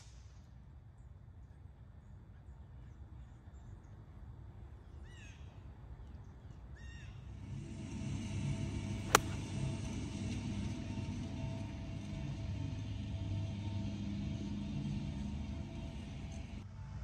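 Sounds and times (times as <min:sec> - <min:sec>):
golf club striking ball: 0:09.0 - 0:09.6.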